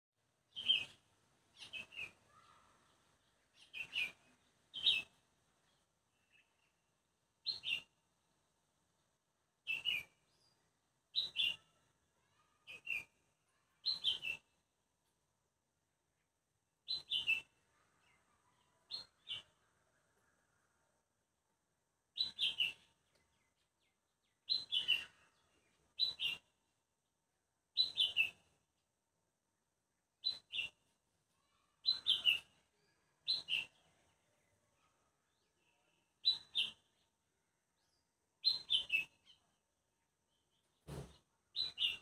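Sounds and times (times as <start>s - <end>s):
bird chirping: 0.5s - 6.8s, 7.4s - 8.0s, 9.6s - 14.6s, 16.9s - 19.7s, 22.2s - 26.6s, 27.8s - 28.6s, 30.2s - 39.6s, 40.2s - 42.0s.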